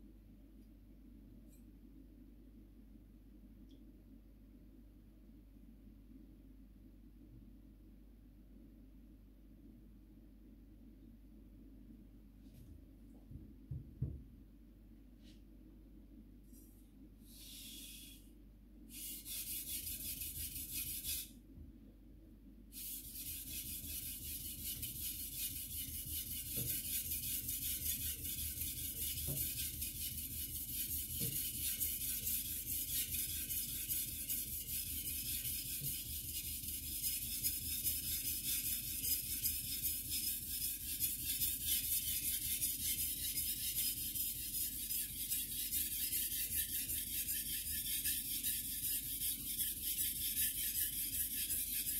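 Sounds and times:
knife scraping on whetstone: 22.8 - 51.9.

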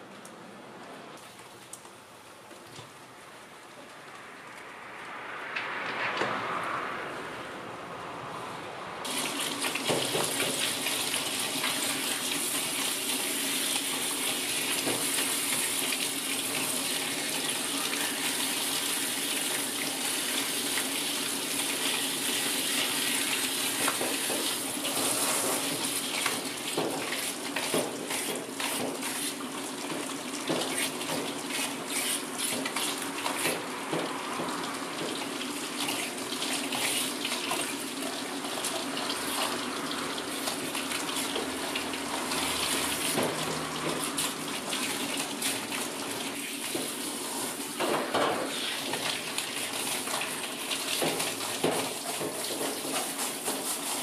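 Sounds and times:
shower head spraying water: 48.4 - 54.0.

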